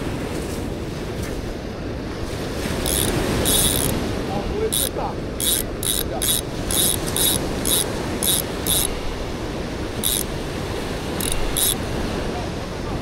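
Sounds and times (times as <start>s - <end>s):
surf and wind rushing: 0.0s - 13.0s
fishing reel ticking: 2.8s - 4.0s, 4.7s - 9.0s, 10.0s - 10.3s, 11.2s - 11.8s.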